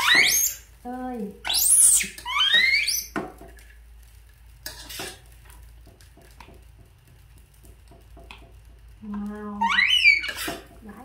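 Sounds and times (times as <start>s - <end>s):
metal spatula scraping a wok: 4.6s - 5.4s, 9.6s - 10.8s.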